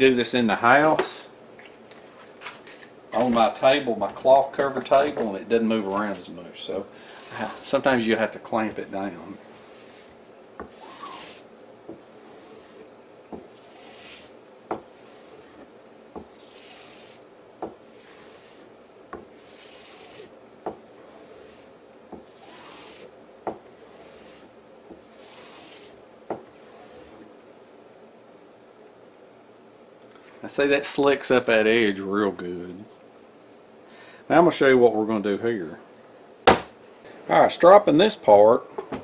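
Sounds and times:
blade rubbing on strop: 7.2 - 7.9, 8.9 - 23.1, 23.7 - 27.3.

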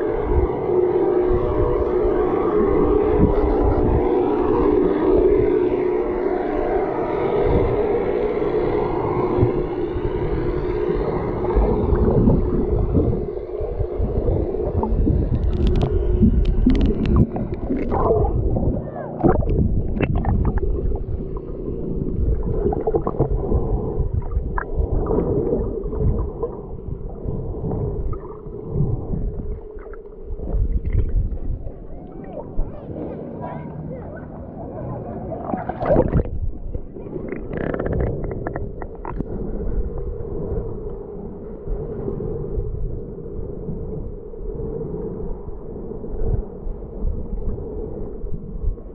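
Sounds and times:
rumbling water movement: 0.0 - 48.9
underwater droning hum: 0.0 - 48.9
sharp clicks and pops: 15.3 - 18.3, 37.2 - 39.3.

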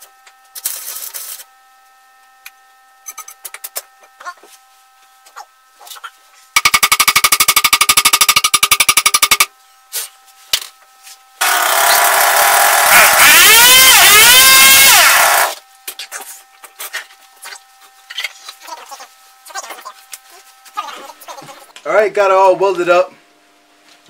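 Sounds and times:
welder arc crackling: 11.4 - 15.6.

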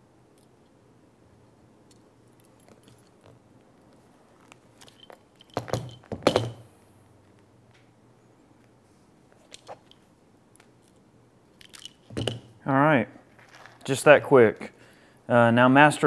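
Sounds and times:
pliers clattering on desk: 4.8 - 6.6, 11.6 - 12.5.

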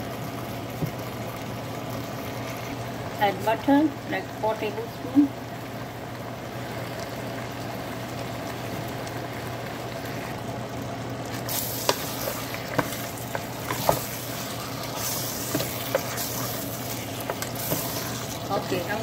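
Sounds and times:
food sizzling in a pot: 0.0 - 19.0.

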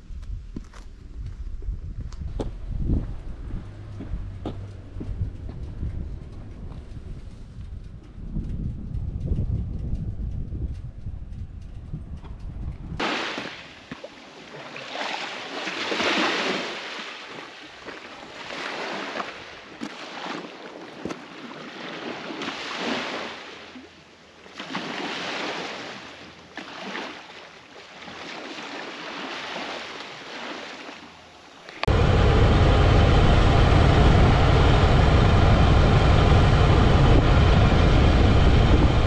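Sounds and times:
small waves washing ashore: 13.0 - 39.0.

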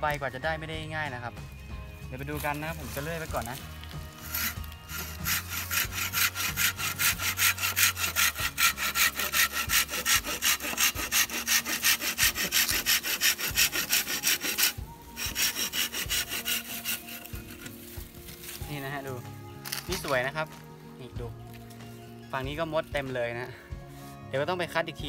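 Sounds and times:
hand saw cutting bamboo: 2.4 - 20.6.

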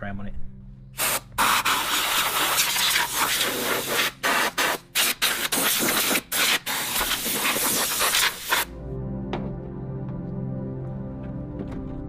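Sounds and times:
compressed air blow gun hissing: 1.0 - 8.7.

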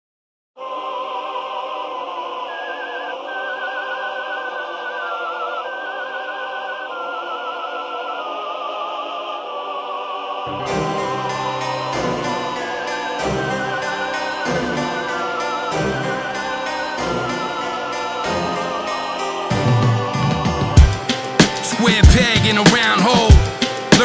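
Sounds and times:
hip-hop beat with deep bass: 10.5 - 24.0
sustained backing music: 10.5 - 24.0
operatic voice with vibrato: 21.6 - 23.4.

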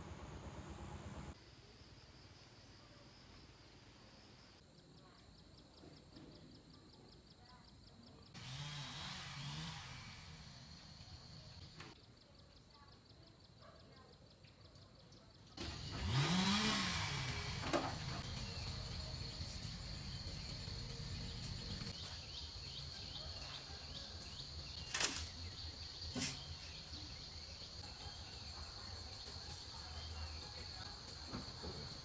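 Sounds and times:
insects chirring: 18.2 - 32.0.

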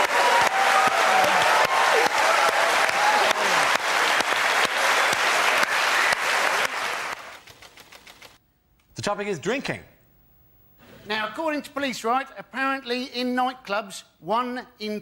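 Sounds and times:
audience applauding: 0.0 - 7.7.

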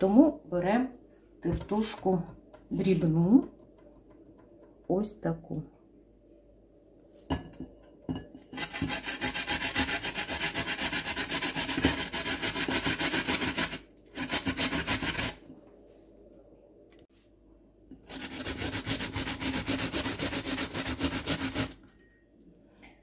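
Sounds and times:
potato grating on metal grater: 8.5 - 15.4, 18.0 - 21.8.

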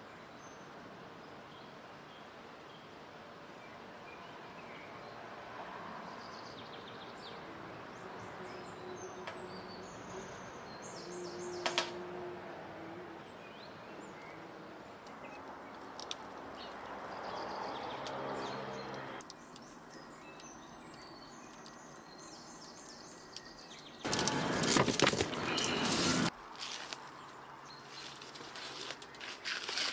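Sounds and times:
bird chirps: 25.3 - 26.3.

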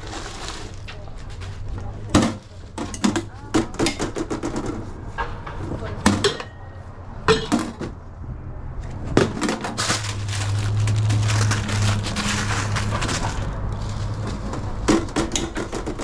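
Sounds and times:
paper crinkling and rustling: 0.0 - 2.7, 9.7 - 16.0.

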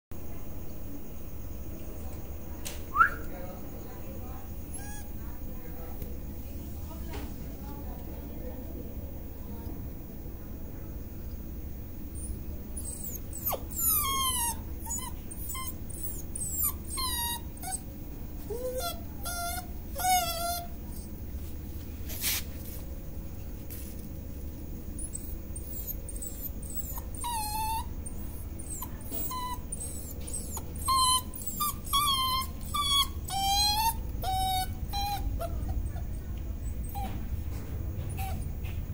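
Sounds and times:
puppy whimpering: 4.7 - 5.2, 12.2 - 21.2, 25.0 - 37.2, 38.0 - 38.7.

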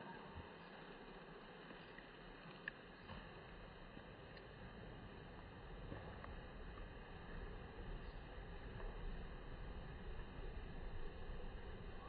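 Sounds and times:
faint ticks: 0.0 - 9.6
low rumble: 3.4 - 12.0.

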